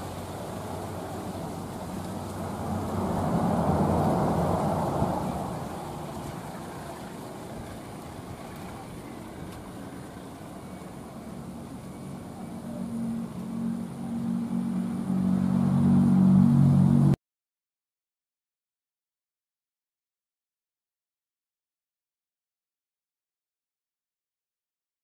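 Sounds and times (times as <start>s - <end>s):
diesel locomotive engine hum: 0.0s - 17.2s
rumble: 9.3s - 17.2s.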